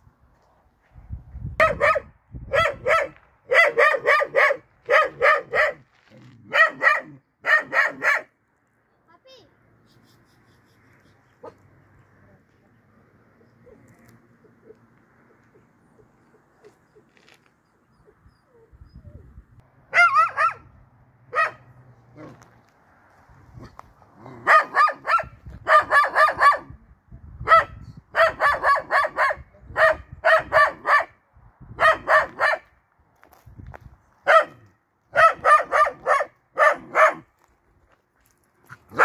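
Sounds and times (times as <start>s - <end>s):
dog barking: 1.6s - 5.8s, 6.5s - 8.3s, 19.9s - 20.7s, 21.3s - 22.3s, 24.4s - 26.8s, 27.4s - 31.2s, 31.8s - 32.7s, 34.3s - 37.3s.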